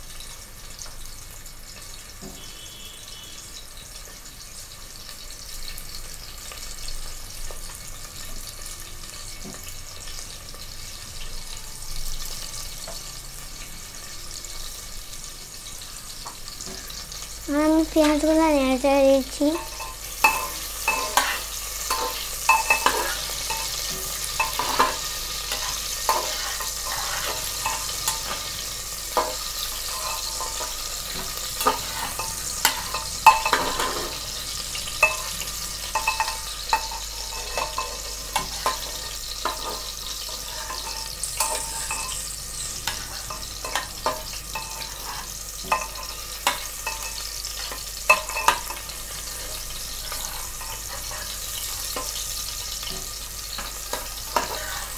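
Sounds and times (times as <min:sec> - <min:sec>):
onions sizzling in oil: 0:00.0 - 0:54.9
spoon scraping metal pot: 0:19.6 - 0:34.2, 0:35.0 - 0:42.2, 0:42.8 - 0:52.2, 0:53.6 - 0:54.9.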